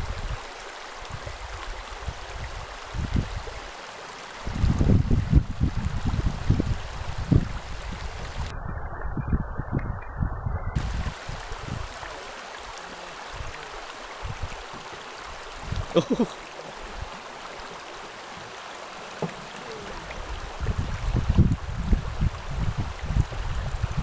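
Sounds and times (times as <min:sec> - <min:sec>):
wind buffeting microphone: 0:00.0 - 0:03.7, 0:04.4 - 0:12.2, 0:13.3 - 0:16.0, 0:19.1 - 0:24.0
river rapid rushing water: 0:00.0 - 0:08.5, 0:10.8 - 0:24.0
voice-like call: 0:19.5 - 0:20.3.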